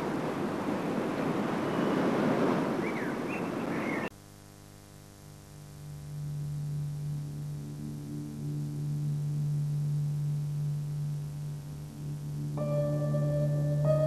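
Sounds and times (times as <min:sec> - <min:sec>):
low drone tone: 0:05.9 - 0:14.0.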